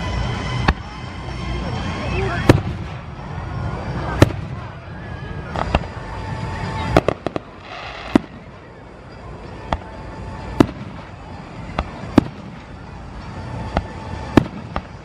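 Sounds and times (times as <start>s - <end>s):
firework shells bursting: 6.9s - 8.6s.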